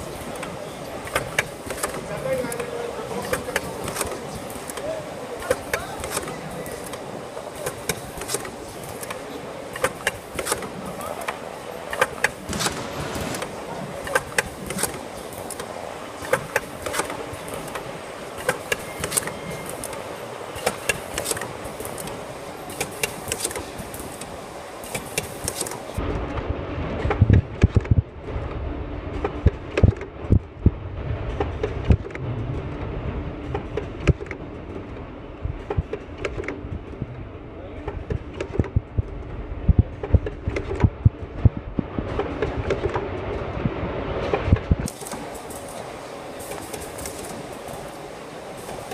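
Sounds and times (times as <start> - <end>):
packing machine humming: 0.0 - 26.0
sharp machine clacks and knocks: 0.1 - 26.0, 33.5 - 34.5.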